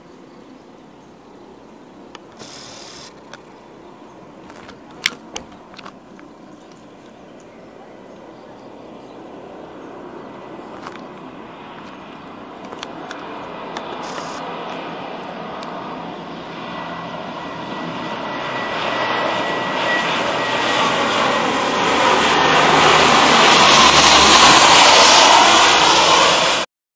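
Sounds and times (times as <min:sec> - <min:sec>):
turboprop aircraft flying low: 0:01.0 - 0:26.7
thin high whine: 0:02.1 - 0:03.3, 0:13.4 - 0:14.8.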